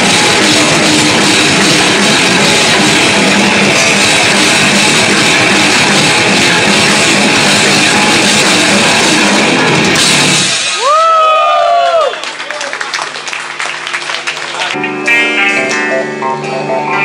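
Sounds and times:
rock band playing live: 0.0 - 11.0, 14.7 - 17.0.

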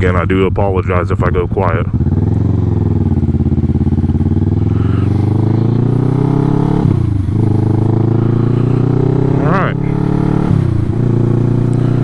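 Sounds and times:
motorcycle engine accelerating: 0.0 - 12.0.

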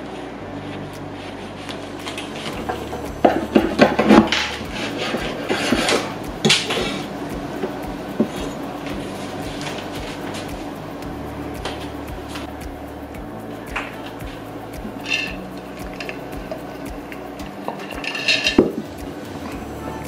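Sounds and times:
tableware and utensils clinking: 17.7 - 19.0.

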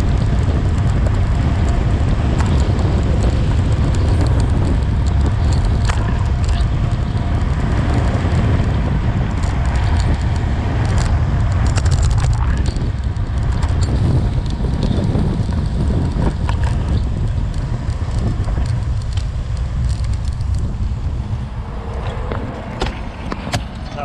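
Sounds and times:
heavy wind rumble on microphone: 0.0 - 24.0
tyre noise on rough asphalt: 0.0 - 24.0
small clicks: 9.4 - 20.7.

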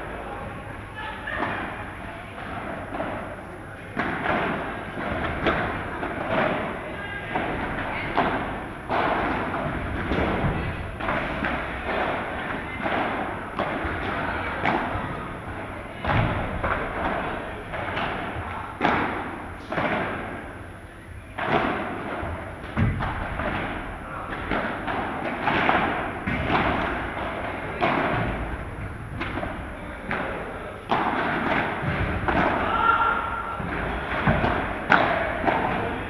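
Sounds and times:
padel ball thuds: 21.4 - 36.0.

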